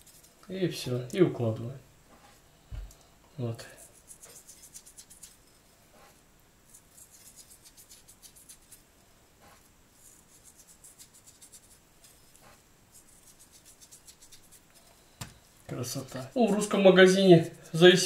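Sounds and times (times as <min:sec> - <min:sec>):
hands rubbing fish with salt: 0:00.0 - 0:00.4, 0:03.6 - 0:05.5, 0:06.6 - 0:08.8, 0:09.6 - 0:18.0.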